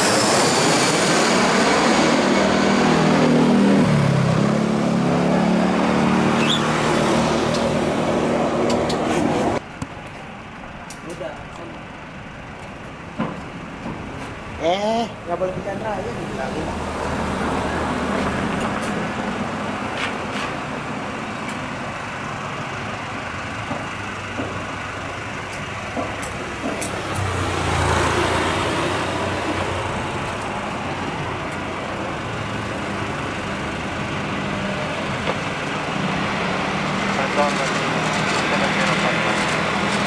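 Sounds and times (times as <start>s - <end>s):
vehicle passing: 0.0s - 9.6s, 15.4s - 21.0s, 24.7s - 40.0s
road traffic: 0.0s - 40.0s.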